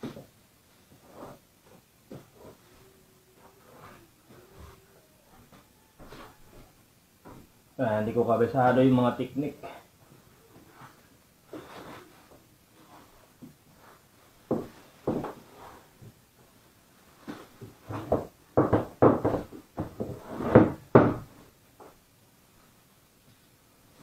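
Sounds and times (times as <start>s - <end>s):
knocks and thumps on wooden floor: 14.5s - 15.4s, 17.3s - 21.4s.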